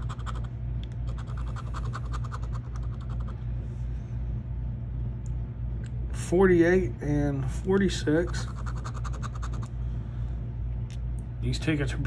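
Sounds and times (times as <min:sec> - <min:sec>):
coin scraping scratch card: 0:00.0 - 0:00.5, 0:08.2 - 0:09.7
steady low hum: 0:00.0 - 0:12.0.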